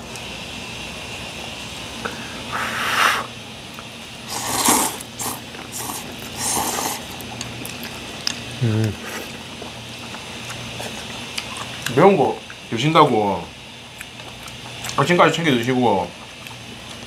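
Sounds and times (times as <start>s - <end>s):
faint steady room hum: 0.0s - 17.0s
noodles being slurped: 4.3s - 11.9s.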